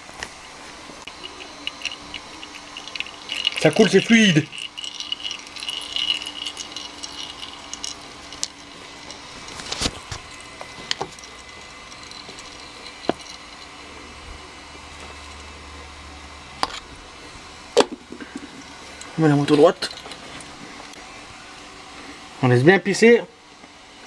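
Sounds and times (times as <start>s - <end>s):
oil trickling into metal pan: 1.1s - 13.9s.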